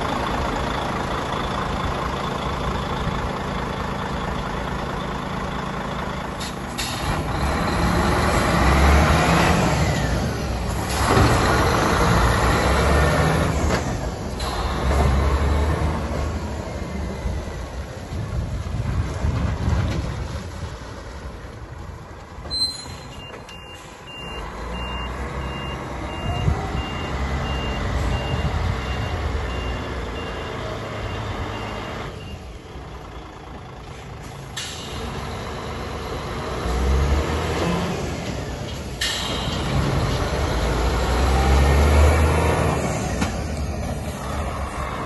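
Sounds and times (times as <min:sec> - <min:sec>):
truck diesel engine running: 0:00.0 - 0:22.4, 0:23.5 - 0:45.0
reversing alarm beeps: 0:22.6 - 0:32.5.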